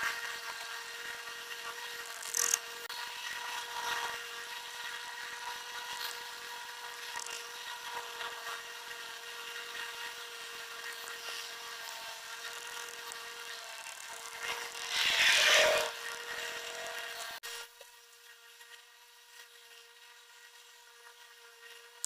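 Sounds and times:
metal pick scratching metal: 2.0s - 2.7s.

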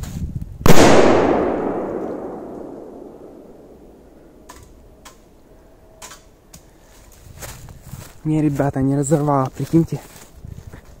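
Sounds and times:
firecracker bang with echo: 0.7s - 3.8s.

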